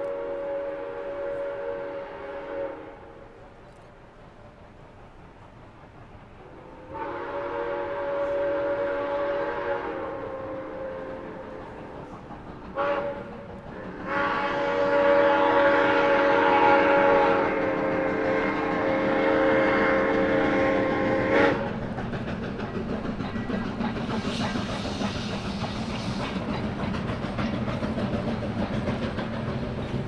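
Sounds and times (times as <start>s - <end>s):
steam locomotive whistle chord: 0.0s - 3.5s, 6.4s - 11.8s, 12.8s - 13.4s, 14.0s - 21.8s
train rumbling: 0.0s - 30.0s.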